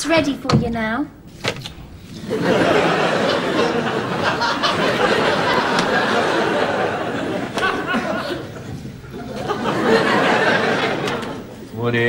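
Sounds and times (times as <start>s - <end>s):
audience laughing: 2.2s - 11.7s.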